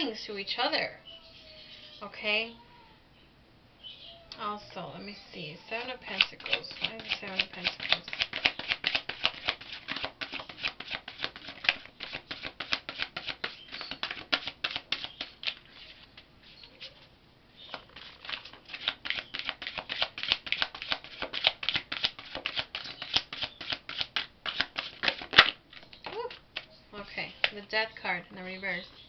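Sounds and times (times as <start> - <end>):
cards shuffled by hand: 6.1 - 16.2, 17.7 - 26.7.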